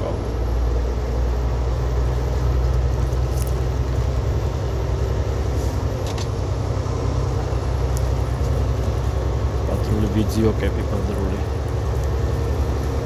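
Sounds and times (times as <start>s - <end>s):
diesel engine droning: 0.0s - 13.0s
tyre noise on wet pavement: 2.1s - 4.2s, 5.5s - 13.0s.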